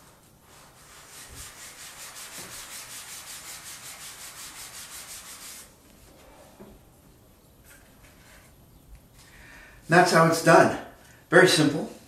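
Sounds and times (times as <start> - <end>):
fast rubbing: 0.5 - 5.7.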